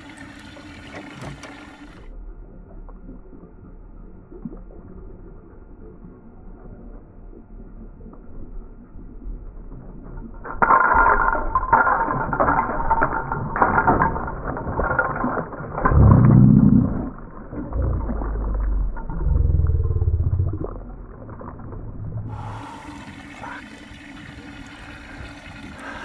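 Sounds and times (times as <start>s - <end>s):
fish thrashing and splashing: 10.4s - 20.2s
hiss of water and wind: 22.2s - 26.0s.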